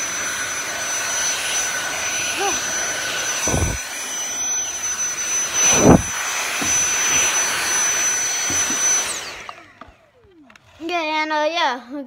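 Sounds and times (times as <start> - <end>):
stick vacuum whining: 0.0 - 11.5
dull thuds: 3.5 - 3.8, 5.6 - 7.0.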